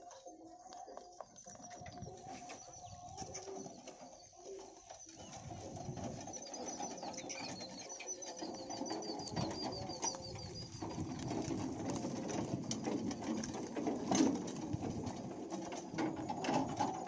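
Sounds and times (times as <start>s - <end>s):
cart wheels rattling on dirt: 0.0s - 17.0s
small bird chirping: 0.6s - 11.3s.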